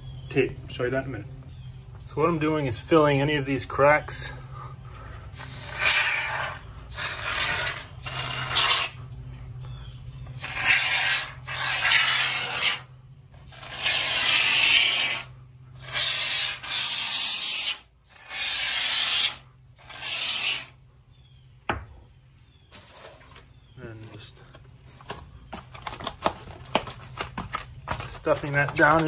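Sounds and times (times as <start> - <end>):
aerosol foam can hissing: 13.5 - 20.7.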